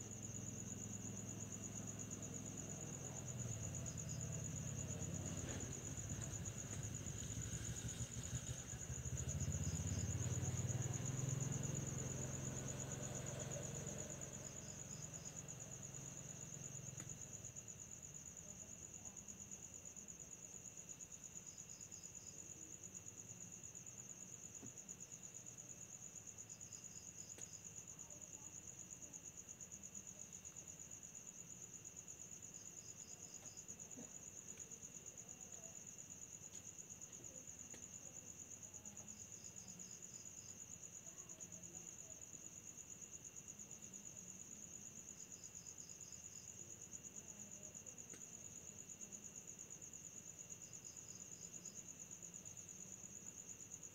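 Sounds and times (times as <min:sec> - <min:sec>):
cricket chirps: 0:00.0 - 0:53.9
cricket trilling: 0:00.0 - 0:53.9.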